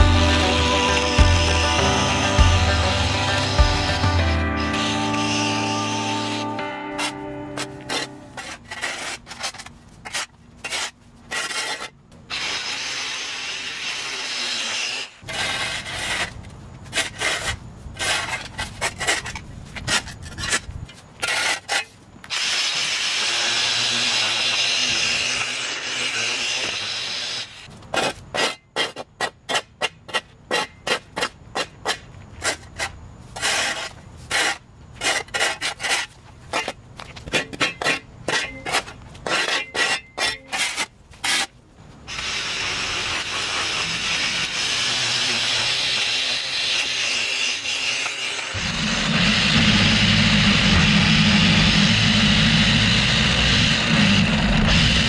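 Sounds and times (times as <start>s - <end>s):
battery edger cutting: 0.0s - 9.6s, 22.3s - 27.7s, 42.1s - 55.0s
shovel scraping concrete: 0.0s - 50.8s.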